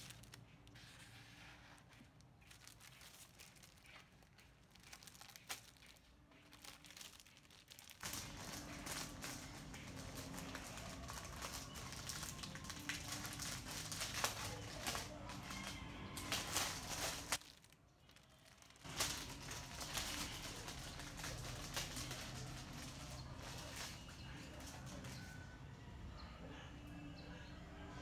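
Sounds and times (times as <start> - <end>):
plastic bags crinkling: 0.0 - 25.4.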